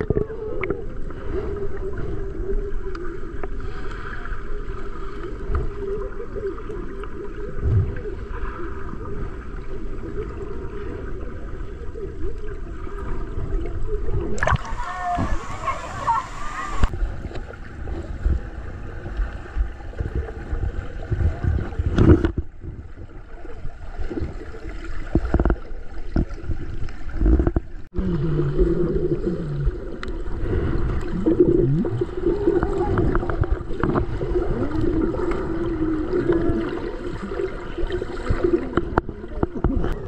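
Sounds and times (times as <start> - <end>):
water gurgling and splashing: 0.0 - 40.0
low rumbling: 26.6 - 40.0.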